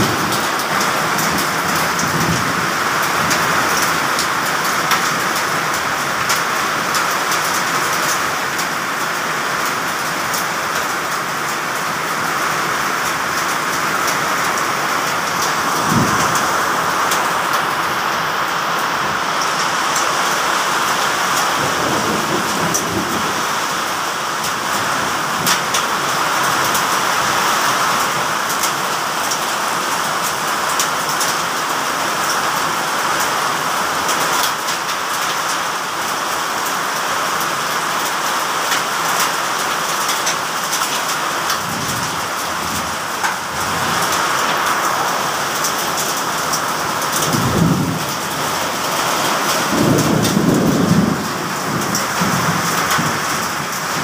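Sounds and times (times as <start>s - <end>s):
heavy rain and hail: 0.0s - 54.0s
sharp ticks of hail impacts: 37.4s - 44.6s.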